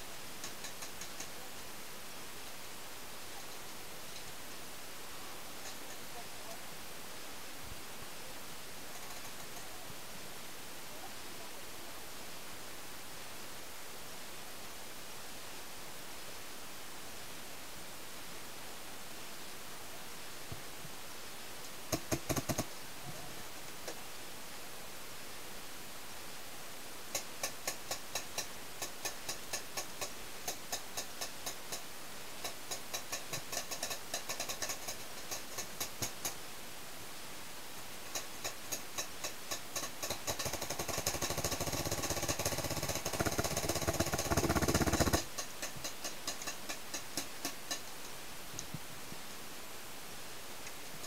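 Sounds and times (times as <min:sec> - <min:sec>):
paintball markers firing: 0:38.2 - 0:47.8.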